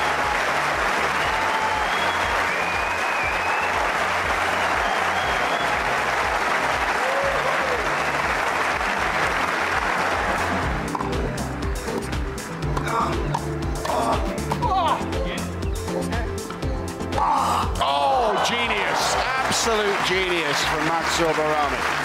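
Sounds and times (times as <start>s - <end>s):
crowd applauding: 0.0s - 11.3s, 17.8s - 22.0s.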